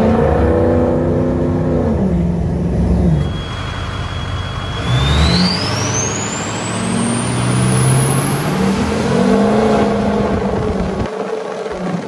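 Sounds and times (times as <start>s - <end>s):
diesel engine accelerating: 0.0s - 11.2s
exhaust roar: 0.0s - 12.0s
high-pitched turbo whistle: 3.1s - 9.8s.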